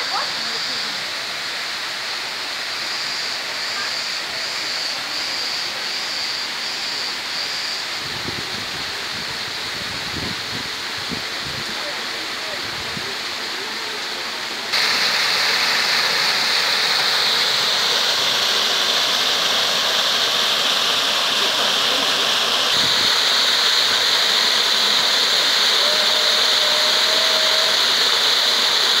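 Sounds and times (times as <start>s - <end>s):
waterfall splashing into channel: 11.1s - 29.0s.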